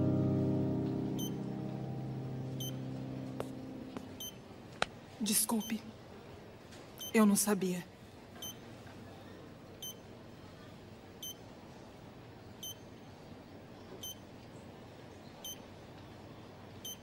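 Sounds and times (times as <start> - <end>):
faint room hiss: 0.0 - 17.0
patient monitor beeping: 1.2 - 1.5, 2.6 - 2.9, 4.0 - 4.4, 8.4 - 8.6, 9.8 - 10.0, 12.6 - 12.8, 14.0 - 14.2, 15.4 - 15.7.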